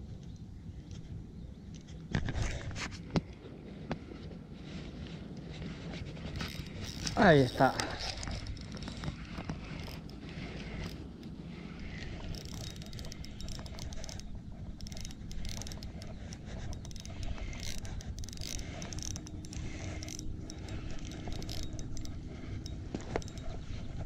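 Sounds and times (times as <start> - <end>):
steady low rumble: 3.3 - 24.0
fishing reel clicking whirr: 6.1 - 24.0.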